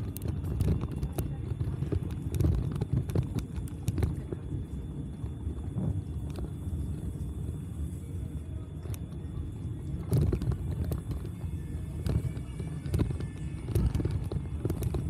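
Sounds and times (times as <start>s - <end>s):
bicycle clicks and rattles: 0.0s - 5.4s, 10.0s - 15.0s
bicycle tyre noise: 0.0s - 9.2s, 9.8s - 15.0s
wind noise: 0.0s - 15.0s.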